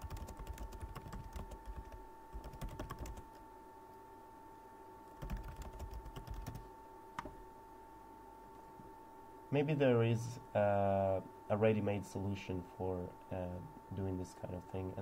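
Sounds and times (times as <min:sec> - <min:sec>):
typing on computer keyboard: 0:00.0 - 0:03.4, 0:05.2 - 0:06.6
faint steady hum: 0:00.0 - 0:15.0.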